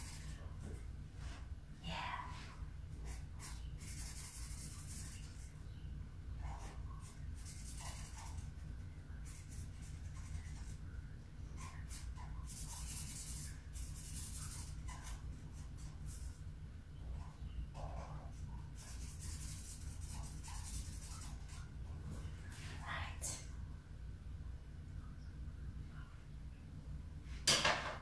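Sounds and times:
marker scratching on paper: 0.0 - 0.4, 3.0 - 5.6, 6.4 - 10.8, 11.5 - 16.4, 17.2 - 21.7
steady low hum: 0.0 - 28.0.

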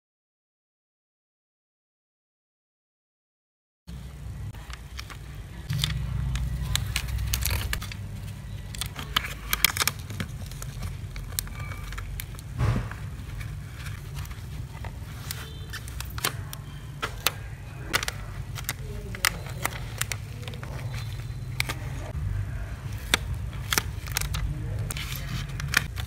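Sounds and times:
steady low hum: 3.9 - 26.0
plastic cover crinkling: 4.6 - 26.0.

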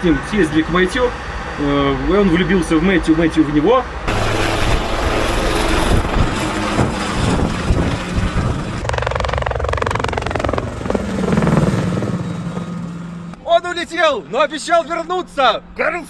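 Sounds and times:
helicopter rotor and engine: 0.0 - 13.4.

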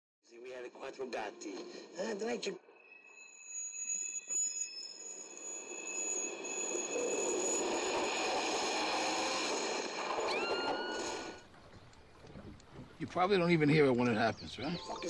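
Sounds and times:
high-pitched ringing tones: 1.3 - 11.4.

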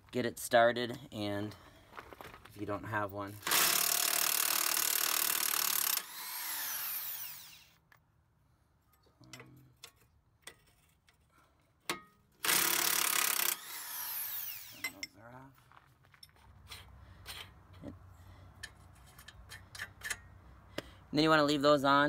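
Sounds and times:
impact wrench whirring: 3.4 - 7.8, 12.4 - 15.0.

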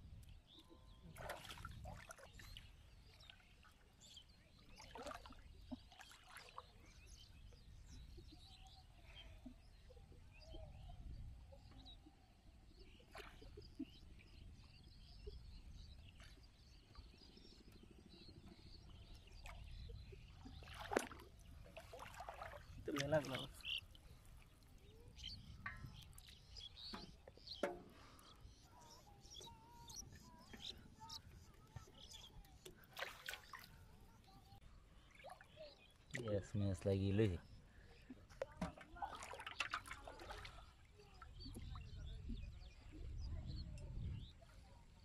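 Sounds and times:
small water splashes and drips: 0.2 - 7.6, 8.2 - 15.4, 16.0 - 42.9
sharper water splash: 20.6 - 23.3, 32.9 - 33.7, 39.0 - 40.7.

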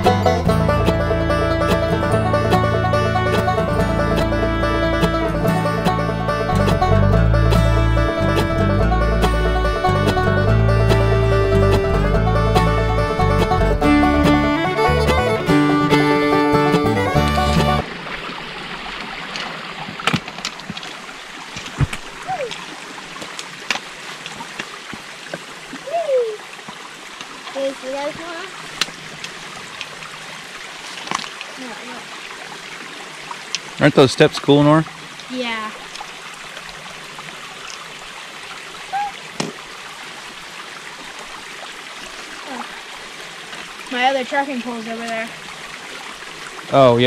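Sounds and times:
creek running over rocks: 0.0 - 47.0
boots and poles knocking stones: 19.2 - 25.5, 30.9 - 31.4.

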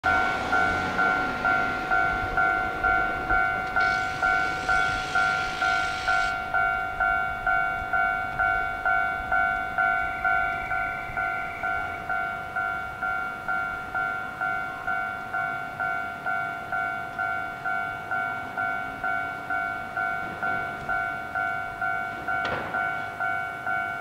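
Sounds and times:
warning bell ringing: 0.0 - 24.0
hiss: 3.8 - 6.4.

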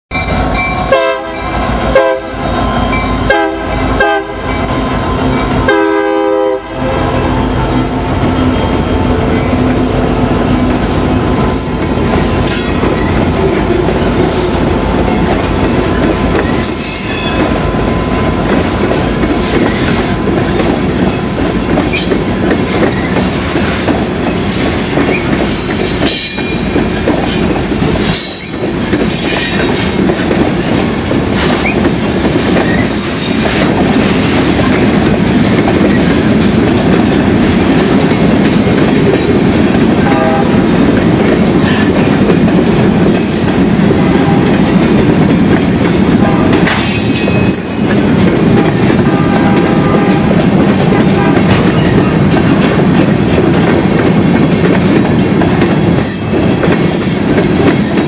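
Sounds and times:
locomotive air horn blasts: 0.8 - 8.0, 40.0 - 40.6, 44.0 - 44.6, 46.2 - 46.7, 48.5 - 50.4
train wheel clatter: 7.0 - 58.0.

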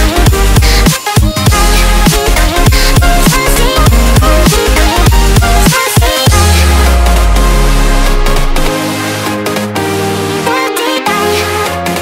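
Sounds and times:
electronic dance music: 0.0 - 12.0
deep bass kicks: 1.5 - 5.7, 6.3 - 8.8.

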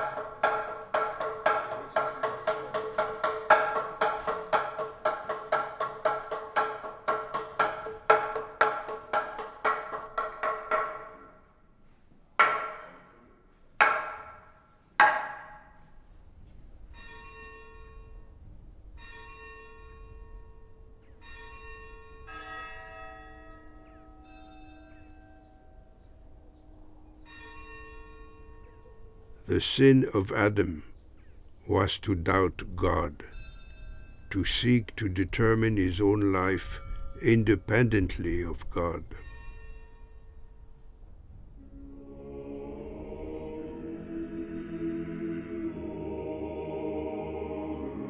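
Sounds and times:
wooden board struck with mallet: 0.0 - 11.4, 12.4 - 13.0, 13.8 - 15.8
soft held pitched tones: 28.6 - 48.0.

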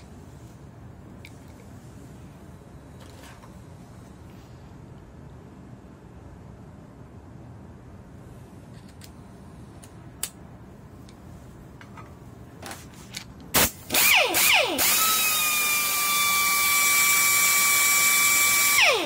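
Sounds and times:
pneumatic screwdriver whine: 13.6 - 19.0.

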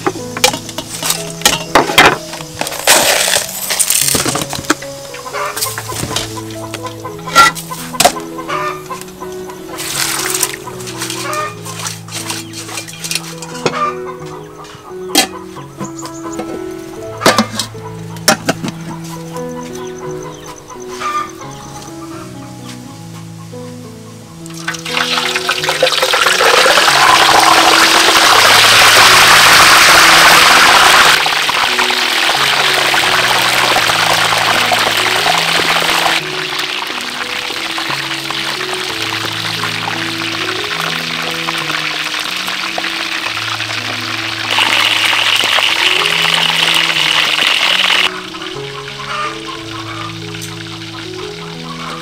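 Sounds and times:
background music: 0.0 - 52.0
oil sizzling: 4.4 - 13.8, 24.4 - 52.0.

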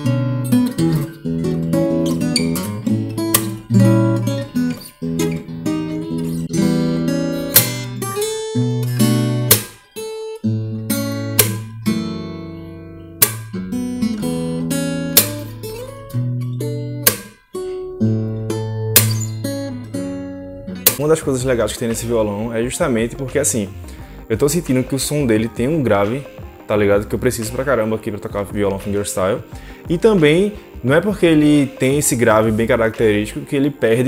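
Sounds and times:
fingerstyle acoustic guitar: 0.0 - 22.2.

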